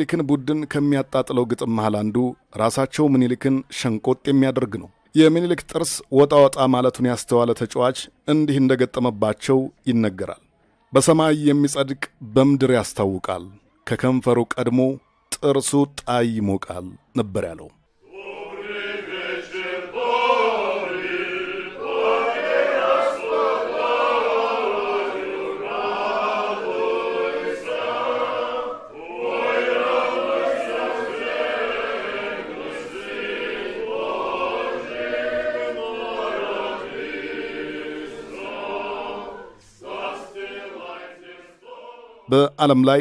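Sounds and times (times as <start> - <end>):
congregation singing a chant: 18.0 - 43.0.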